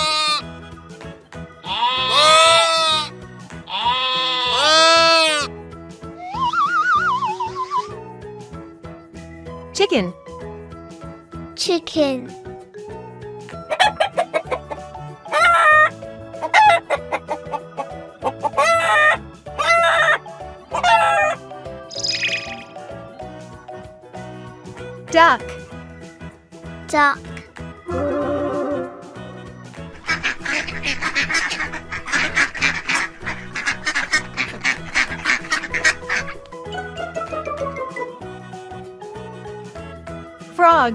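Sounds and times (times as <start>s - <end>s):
light background music: 0.0s - 40.9s
ducks quacking: 1.6s - 3.1s, 3.7s - 5.5s, 13.7s - 21.4s, 29.9s - 36.4s
chickens calling: 13.6s - 22.8s, 29.9s - 37.8s.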